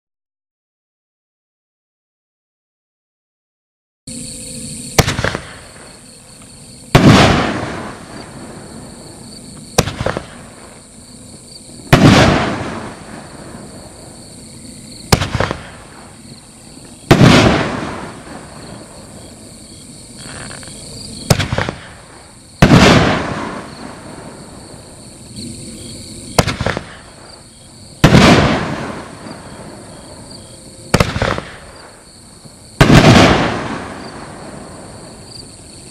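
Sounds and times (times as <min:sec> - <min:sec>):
firework launch crack: 0:04.1 - 0:25.0, 0:26.2 - 0:35.2
firework shell bang: 0:05.0 - 0:06.0.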